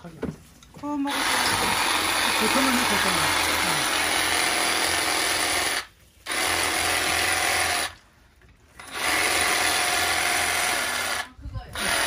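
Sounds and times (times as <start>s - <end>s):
reciprocating saw cutting: 1.1s - 8.0s, 8.8s - 12.0s.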